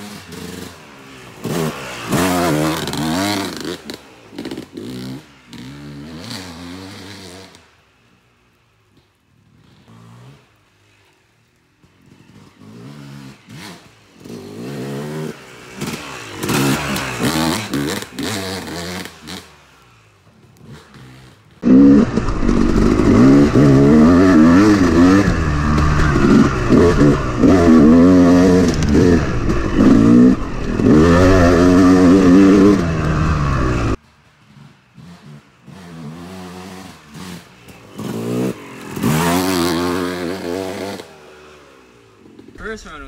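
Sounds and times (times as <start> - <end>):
dirt bike engine revving: 0.0 - 7.7, 12.0 - 42.8.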